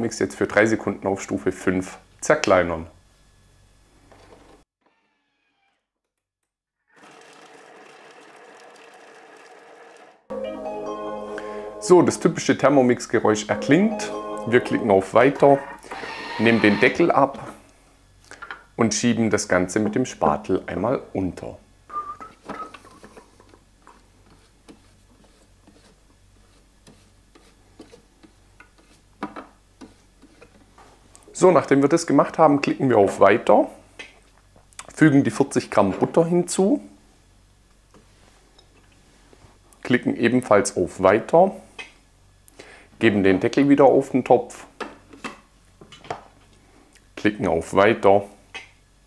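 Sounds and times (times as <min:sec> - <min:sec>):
food processor motor whirring: 0:06.9 - 0:10.2, 0:15.8 - 0:17.0.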